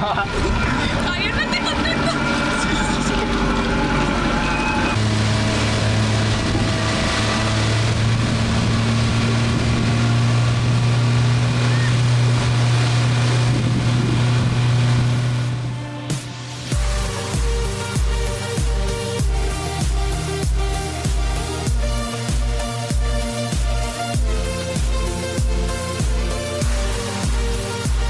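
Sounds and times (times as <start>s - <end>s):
motorboat engine humming: 0.0s - 28.0s
water rushing: 0.0s - 28.0s
wind noise: 3.3s - 15.6s.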